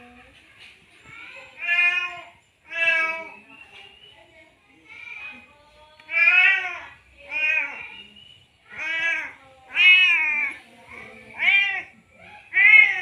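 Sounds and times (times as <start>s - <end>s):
cat meowing loudly: 6.1s - 7.8s, 8.7s - 10.5s, 12.5s - 13.0s.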